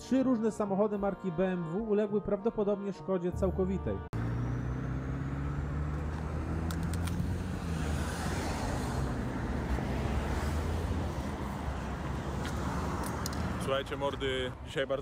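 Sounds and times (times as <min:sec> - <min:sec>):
road traffic noise: 0:04.2 - 0:15.0
vehicle engine rumble: 0:04.2 - 0:15.0.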